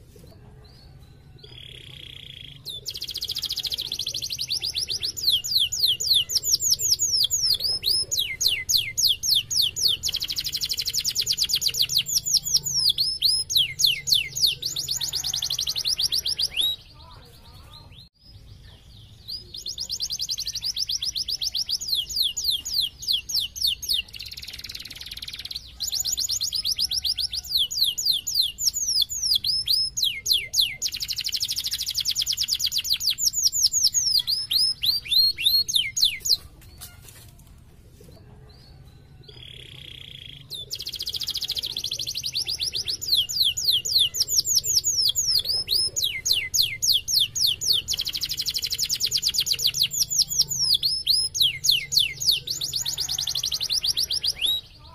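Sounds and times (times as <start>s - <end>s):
canary singing trills: 0.6s - 37.1s, 38.4s - 54.9s.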